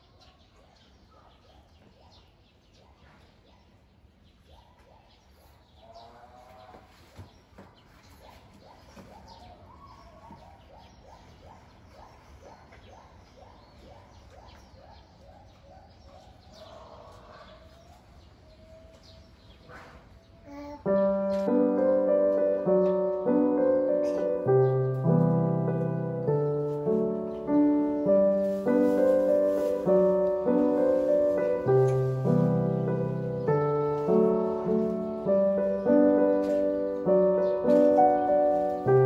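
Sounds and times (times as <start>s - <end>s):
repeated chirping calls: 20.3s - 39.0s
piano music: 20.8s - 39.0s.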